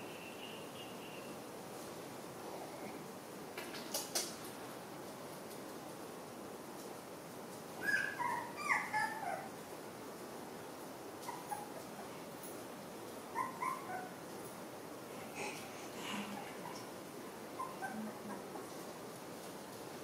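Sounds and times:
puppy whimpering: 0:07.8 - 0:09.5, 0:11.3 - 0:11.9, 0:13.4 - 0:14.1, 0:17.6 - 0:18.6.

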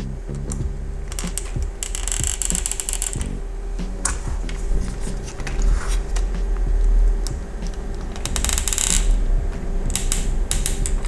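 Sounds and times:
rattling run of clicks: 0:00.5 - 0:03.4, 0:07.2 - 0:11.0.

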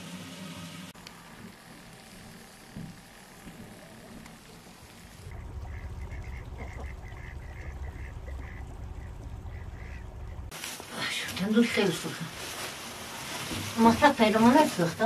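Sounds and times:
steady low rumble: 0:03.8 - 0:10.6
ducks quacking: 0:05.2 - 0:10.5.

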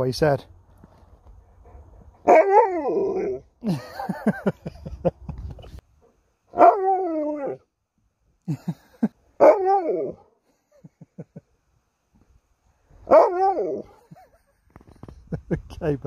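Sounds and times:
dog howling vocal calls: 0:02.2 - 0:03.4, 0:06.5 - 0:07.7, 0:09.4 - 0:10.2, 0:13.1 - 0:13.9.

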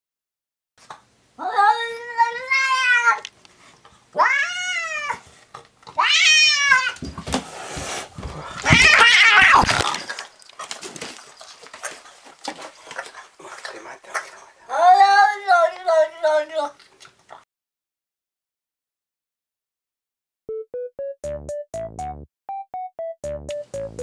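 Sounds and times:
cat yowling: 0:01.4 - 0:03.2, 0:04.2 - 0:05.2, 0:06.0 - 0:07.0, 0:08.6 - 0:09.8.

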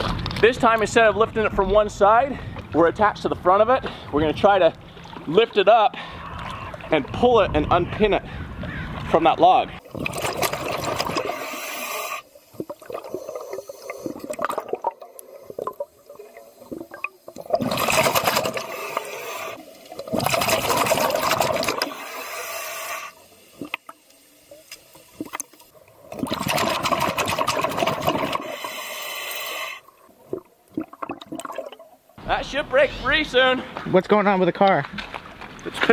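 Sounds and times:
air bubbling underwater: 0:09.8 - 0:23.9, 0:25.0 - 0:32.0.

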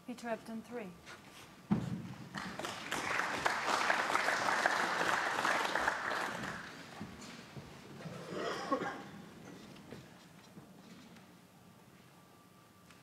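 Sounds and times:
audience applauding: 0:02.3 - 0:07.0.

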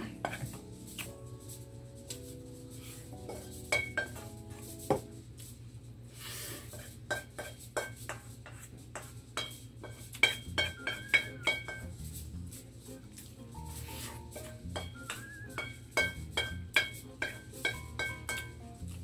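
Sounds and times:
spoon scraping metal wok: 0:06.3 - 0:12.2, 0:12.9 - 0:19.0.

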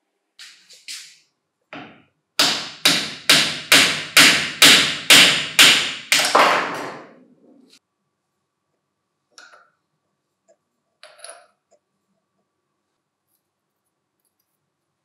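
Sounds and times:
wooden mallet striking steel: 0:01.8 - 0:07.1.

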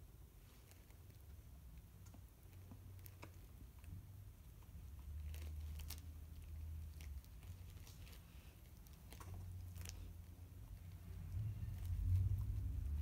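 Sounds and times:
low hum: 0:09.4 - 0:13.0.

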